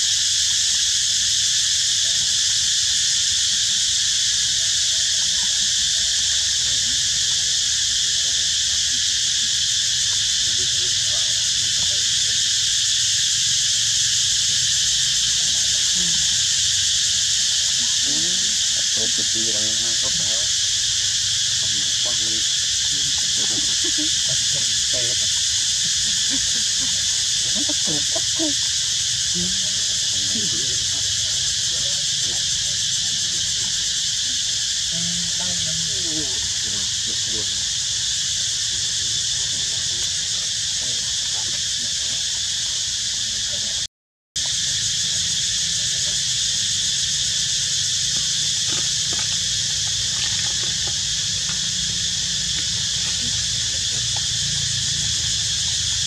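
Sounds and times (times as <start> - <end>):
insect chorus drone: 0.0 - 56.0
faint low voices: 10.1 - 12.5, 14.4 - 37.8, 38.6 - 43.9, 44.8 - 56.0.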